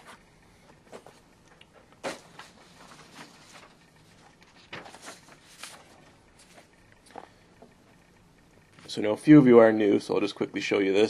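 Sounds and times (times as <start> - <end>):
paper rustling on table: 2.0 - 7.3.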